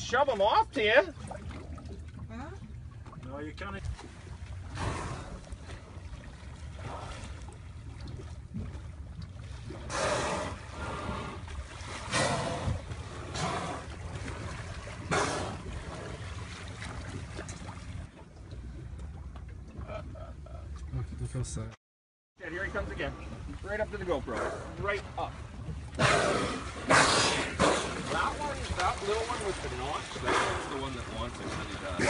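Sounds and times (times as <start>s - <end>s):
water lapping at hull: 0.0s - 21.6s, 22.4s - 32.0s
whale blows and splashes: 3.9s - 19.1s, 25.5s - 32.0s.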